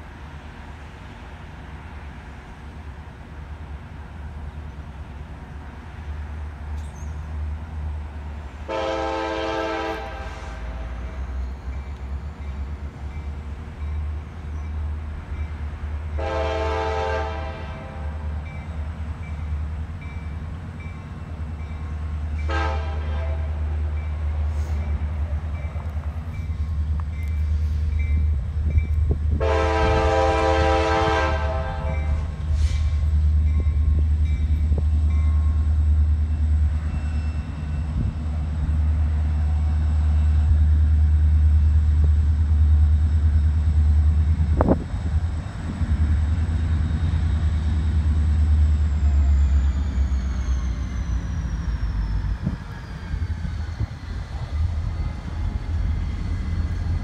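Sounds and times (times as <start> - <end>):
low train rumble: 0.0 - 57.0
locomotive horn blasts: 8.7 - 11.2, 16.1 - 18.3, 22.4 - 23.8, 29.3 - 32.4.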